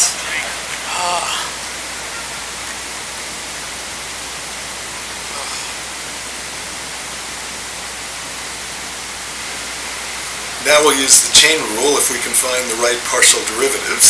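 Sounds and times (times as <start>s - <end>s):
steady room tone hiss: 0.0s - 14.0s.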